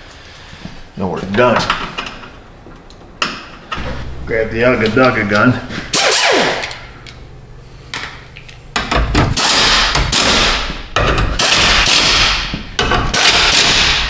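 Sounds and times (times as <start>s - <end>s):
impact wrench hammering: 8.7s - 14.0s.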